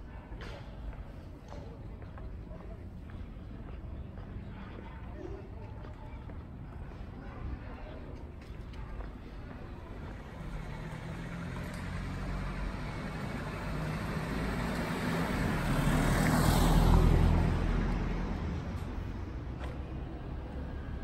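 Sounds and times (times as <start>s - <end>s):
car driving past: 10.0s - 21.0s.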